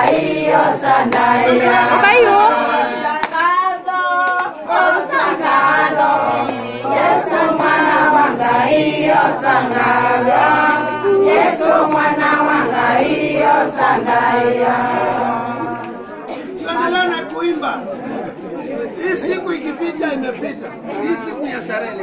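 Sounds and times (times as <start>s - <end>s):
women singing in chorus: 0.0s - 16.9s.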